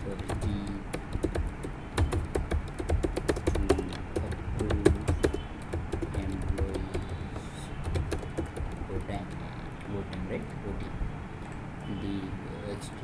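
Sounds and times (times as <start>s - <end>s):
typing on computer keyboard: 0.1s - 9.4s.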